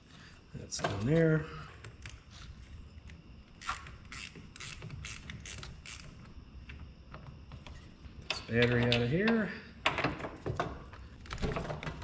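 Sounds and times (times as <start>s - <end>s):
hand ratchet clicking: 3.6s - 6.2s.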